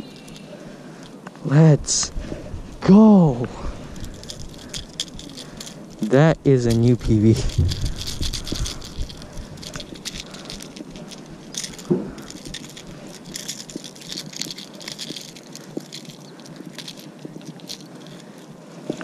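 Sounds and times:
metal hooks clicking and jangling: 3.9s - 19.0s.

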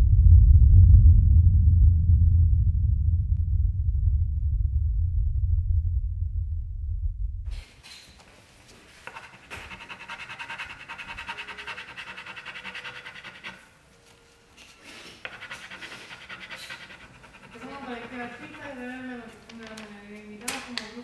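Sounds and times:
low rumble: 0.0s - 7.6s
rubbing on paper: 8.6s - 19.7s.

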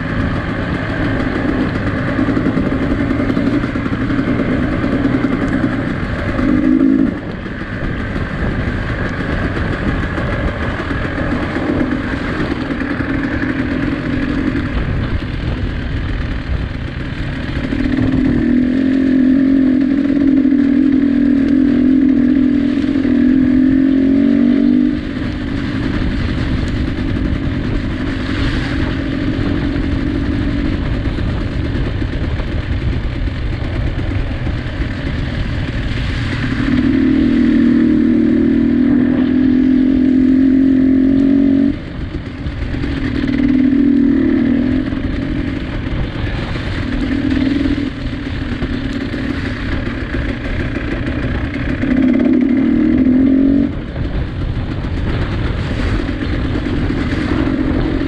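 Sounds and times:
vehicle engine revving: 0.0s - 58.0s.

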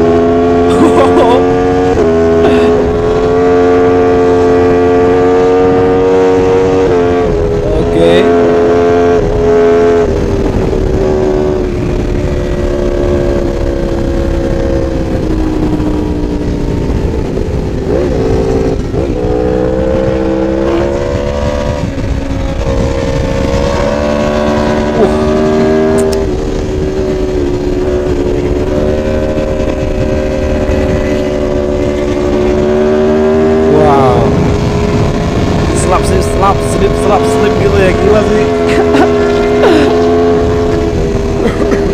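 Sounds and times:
motorcycle engine at high revs: 0.0s - 41.9s
wind rushing over microphone: 0.0s - 41.9s.

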